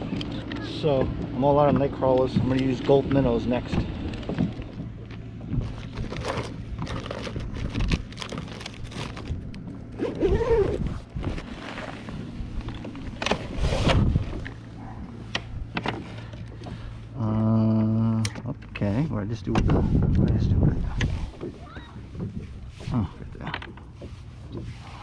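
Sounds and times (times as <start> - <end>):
steady low hum: 0.0 - 25.0
gear being rummaged: 4.6 - 14.6
plastic bag crinkling: 5.6 - 9.6.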